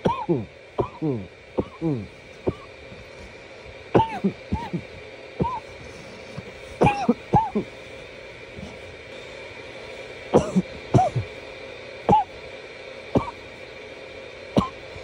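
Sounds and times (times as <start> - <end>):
man coughing: 0.0 - 2.7, 3.9 - 5.7, 6.8 - 7.8, 10.4 - 11.3, 12.1 - 12.3, 13.2 - 13.4.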